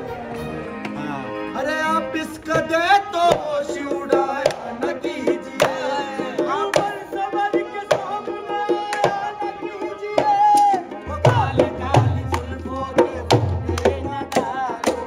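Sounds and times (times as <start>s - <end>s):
harmonium: 0.0s - 15.0s
man singing: 1.2s - 15.0s
hand drum quick rhythm: 3.2s - 15.0s.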